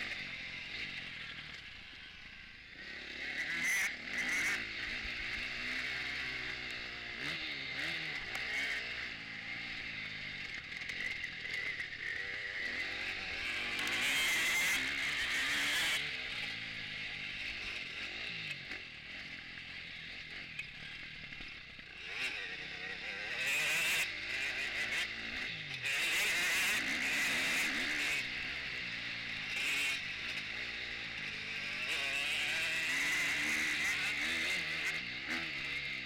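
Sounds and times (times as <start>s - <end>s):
motocross bike engine revving: 0.0s - 36.0s.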